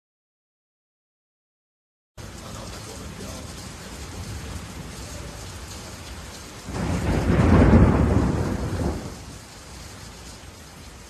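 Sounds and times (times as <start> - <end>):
rain hiss: 2.2 - 11.0
thunder rumble: 6.6 - 9.6.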